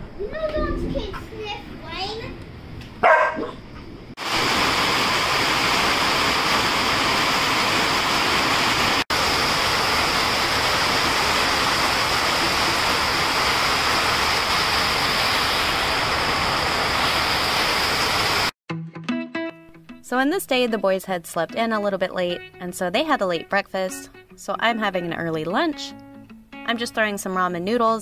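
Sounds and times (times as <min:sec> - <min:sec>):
heavy rain pouring: 0:04.2 - 0:18.6
rain running off roof: 0:04.2 - 0:18.6.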